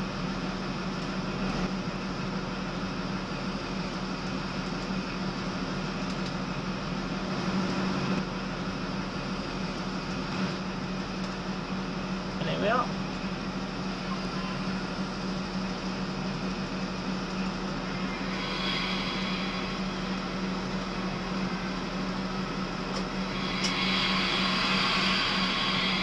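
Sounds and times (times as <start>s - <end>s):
train cab drone: 0.0s - 26.0s
wheel and rail noise: 0.0s - 26.0s
hiss: 17.8s - 22.4s, 23.1s - 26.0s.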